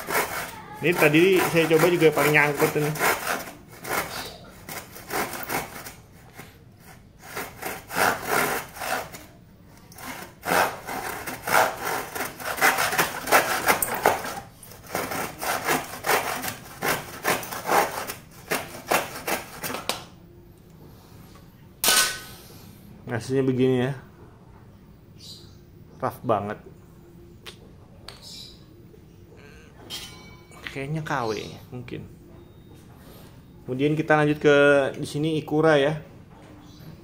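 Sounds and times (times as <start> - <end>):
hand saw rasping through wood: 0.0 - 9.3, 10.0 - 19.8.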